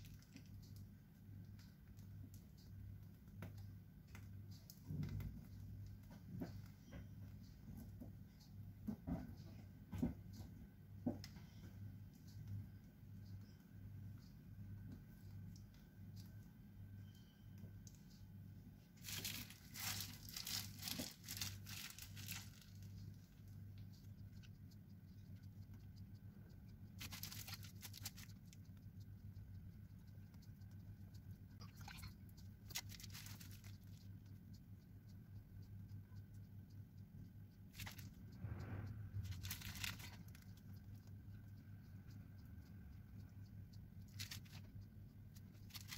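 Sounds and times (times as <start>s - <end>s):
faint low hum: 0.0s - 45.9s
plastic piping bag crinkling: 19.0s - 23.1s, 27.0s - 28.6s, 31.9s - 34.0s, 37.8s - 38.2s, 39.2s - 40.6s, 44.1s - 44.7s, 45.6s - 45.9s.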